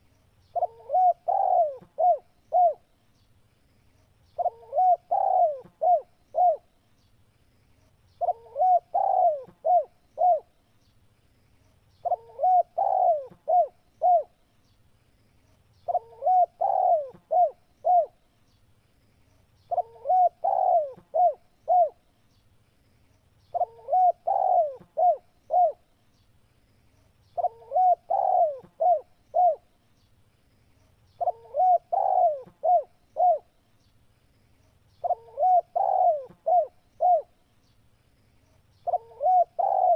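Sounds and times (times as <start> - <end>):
dove cooing: 0.5 - 2.9, 4.4 - 6.7, 8.2 - 10.5, 12.0 - 14.4, 15.9 - 18.2, 19.7 - 22.0, 23.5 - 25.8, 27.4 - 29.7, 31.2 - 33.5, 35.0 - 37.4, 38.8 - 39.9.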